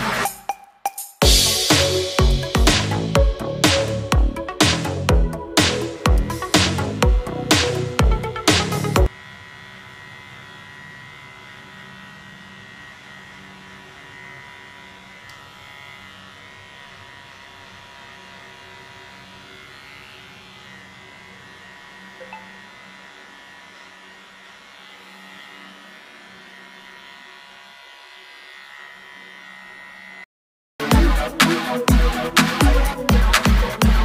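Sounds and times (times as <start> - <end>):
loud electronic music: 0.0 - 9.1, 30.8 - 34.0
electric hair clippers buzzing: 1.2 - 34.0.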